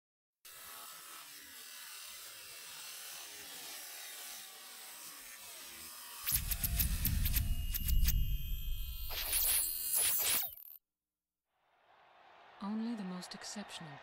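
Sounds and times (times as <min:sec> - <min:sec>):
sharp digital clicks: 0:06.3 - 0:10.8.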